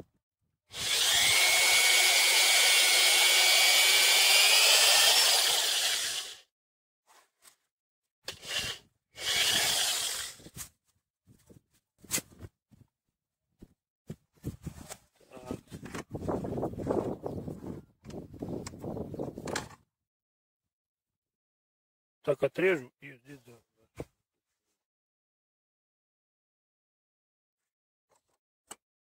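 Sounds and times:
electric drill boring into wood: 0.7 - 6.5, 8.3 - 10.5.

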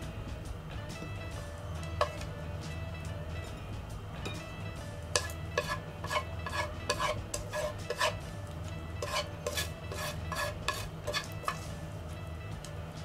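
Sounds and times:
chopsticks scraping a frying pan: 2.0 - 2.3, 5.1 - 8.3, 8.9 - 11.8.

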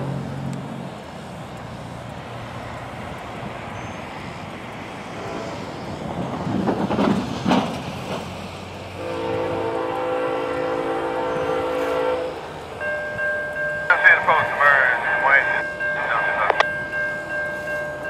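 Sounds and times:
distant freight train rumble: 0.0 - 18.0
train horn blast: 5.2 - 5.6, 9.0 - 12.5.

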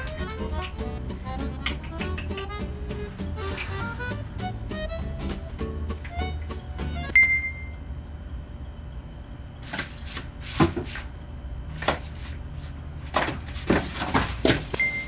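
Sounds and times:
music: 0.0 - 7.2
short high ping: 7.1 - 7.8.

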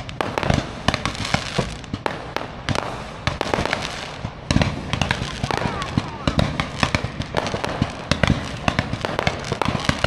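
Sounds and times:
fireworks bangs and pops: 0.0 - 10.0.

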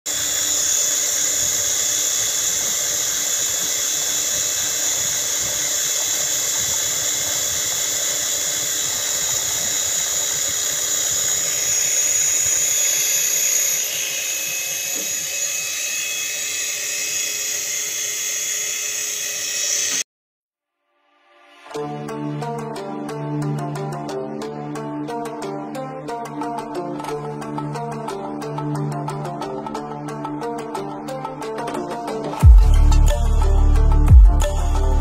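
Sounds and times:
high-pitched drone motor whine: 0.1 - 20.0, 32.4 - 35.0
rotor blades whirring: 0.1 - 20.0.

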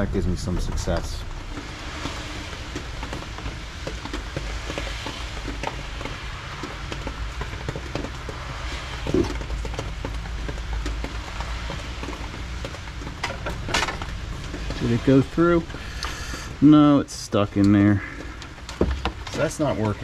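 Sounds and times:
steady hiss and low rumble: 0.0 - 20.0
wires clicking and scraping: 0.0 - 20.0.

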